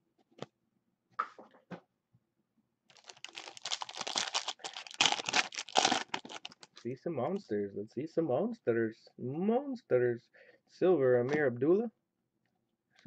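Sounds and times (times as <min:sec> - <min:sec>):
foil wrapper crinkling: 0:02.9 - 0:06.8.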